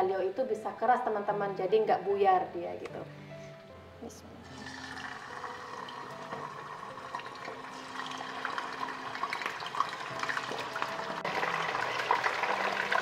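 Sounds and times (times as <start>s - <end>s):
chicken frying in oil: 7.2s - 13.0s.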